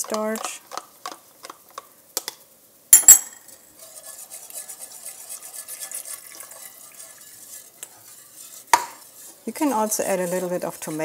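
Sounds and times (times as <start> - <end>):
whisk beating sauce in a pot: 3.7 - 11.0.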